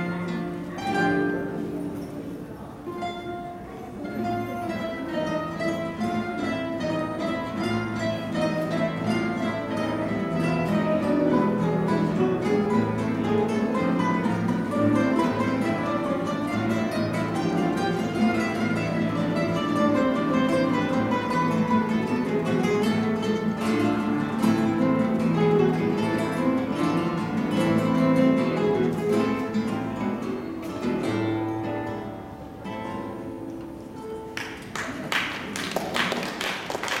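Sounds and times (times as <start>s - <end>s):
acoustic guitars playing: 0.0s - 35.6s
audience applause: 34.4s - 37.0s.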